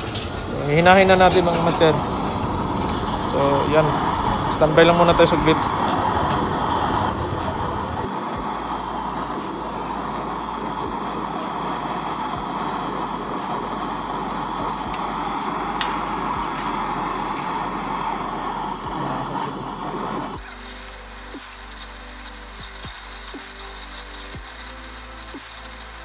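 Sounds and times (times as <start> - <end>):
gas torch flame: 0.0 - 26.0.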